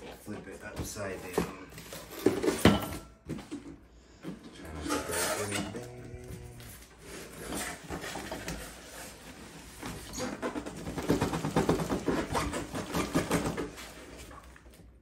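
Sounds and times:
cardboard scraping on packing: 0:06.4 - 0:14.6.

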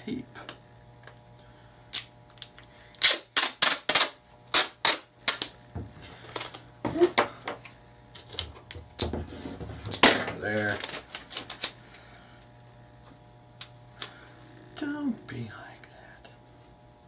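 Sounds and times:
packing tape ripping off roll: 0:01.9 - 0:05.6, 0:06.3 - 0:06.6, 0:08.2 - 0:11.8.

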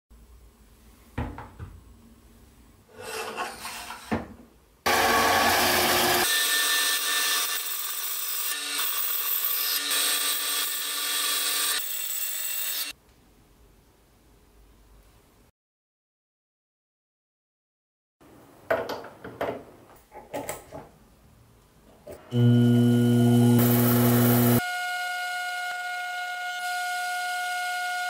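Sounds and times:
band saw cutting metal tube: 0:04.9 - 0:12.9, 0:22.3 - 0:28.0.

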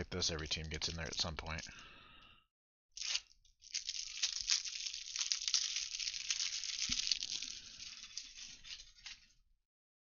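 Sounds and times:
plastic wrapping crinkling: 0:00.6 - 0:01.7, 0:03.0 - 0:09.4.

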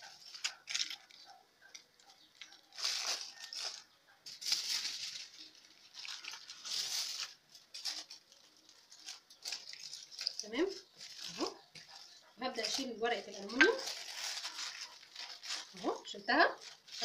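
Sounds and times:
aluminium foil crinkling: 0:00.0 - 0:17.0.

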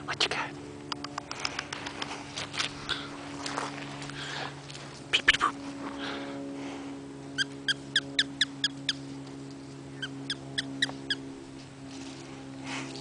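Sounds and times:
steady low hum: 0:00.0 - 0:13.0
animal high chirps: 0:07.4 - 0:09.0, 0:10.0 - 0:11.2.

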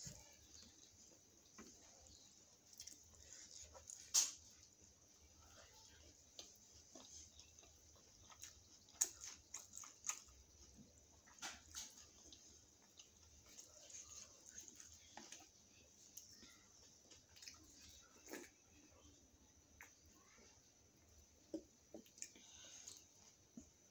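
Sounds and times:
mouth chewing sounds: 0:06.0 - 0:16.3, 0:17.0 - 0:18.9.

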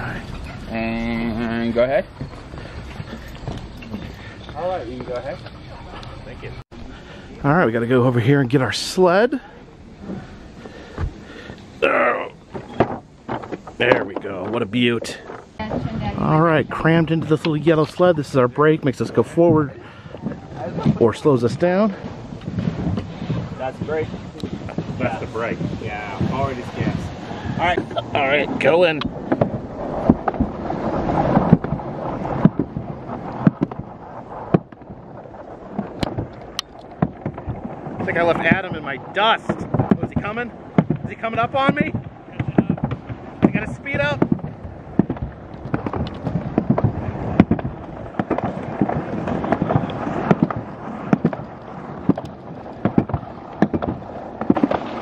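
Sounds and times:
sled rolling rumble: 0:00.0 - 0:55.0
wind on microphone: 0:00.0 - 0:55.0
sharp knocks of sled: 0:12.5 - 0:55.0.

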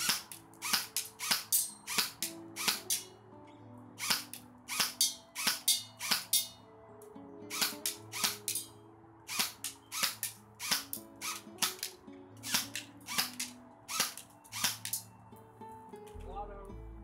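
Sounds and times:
airsoft gun firing snaps: 0:00.0 - 0:03.1, 0:04.0 - 0:06.5, 0:07.5 - 0:08.7, 0:09.3 - 0:15.1
background music: 0:00.0 - 0:17.0.

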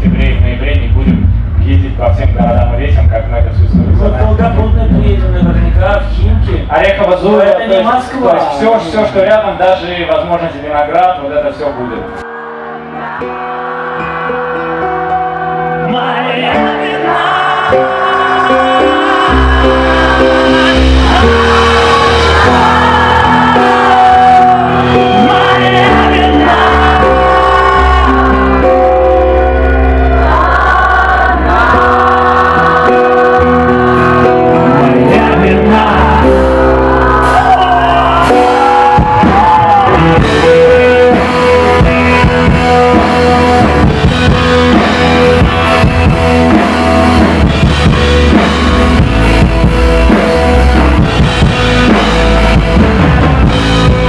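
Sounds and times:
drums with steady beat: 0:00.0 - 0:06.8, 0:18.9 - 0:27.6, 0:37.2 - 0:54.0
guitar and keyboard chords: 0:00.0 - 0:09.5, 0:11.2 - 0:54.0
male singer singing: 0:15.7 - 0:28.8, 0:30.3 - 0:43.4.

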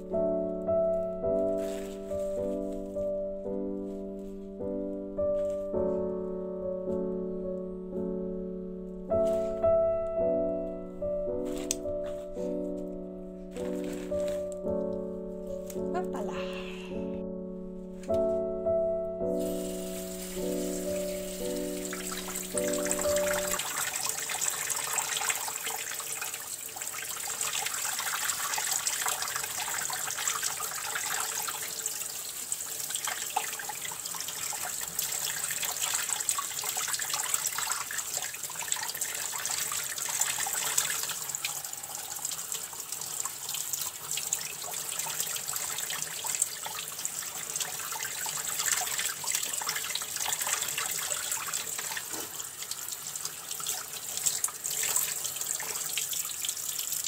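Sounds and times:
water splashing on greens: 0:01.4 - 0:03.1, 0:19.4 - 0:31.9
kitchen tap running: 0:19.6 - 0:57.0.

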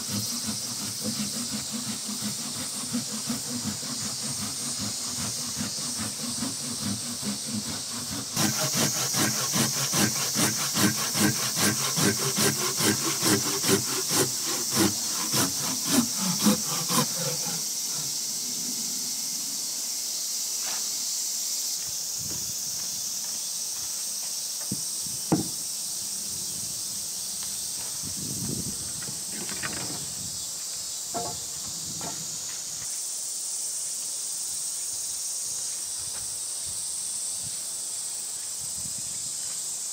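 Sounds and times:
high-pitched hiss: 0:00.0 - 0:12.1, 0:14.3 - 0:39.9
hand saw cutting wood: 0:00.0 - 0:19.4, 0:28.5 - 0:30.1, 0:31.2 - 0:32.5
light knocks of wood: 0:24.6 - 0:25.6.

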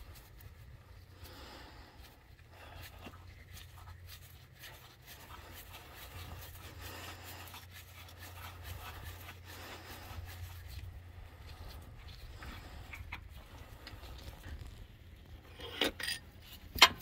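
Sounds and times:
steady low hum: 0:00.0 - 0:17.0
wrench rubbing and clicking: 0:15.4 - 0:17.0.

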